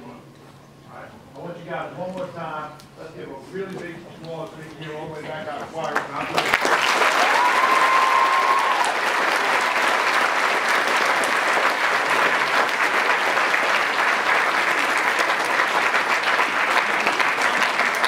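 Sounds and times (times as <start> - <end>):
audience applauding: 5.8 - 18.0.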